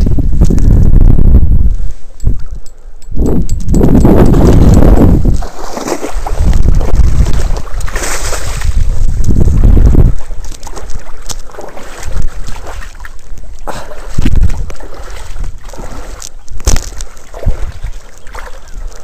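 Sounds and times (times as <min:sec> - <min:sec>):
wind rumbling on microphone: 0:00.0 - 0:19.0
water sloshing and splashing: 0:04.2 - 0:19.0.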